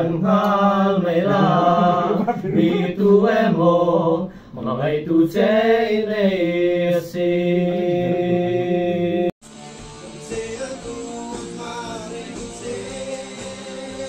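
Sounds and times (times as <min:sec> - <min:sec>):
band music with guitar: 0:09.4 - 0:14.0.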